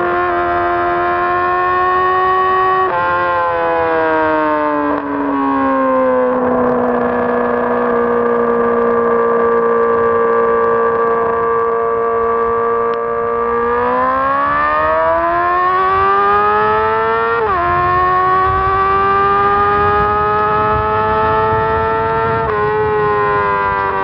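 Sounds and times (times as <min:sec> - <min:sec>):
motorcycle engine revving: 0:00.0 - 0:24.0.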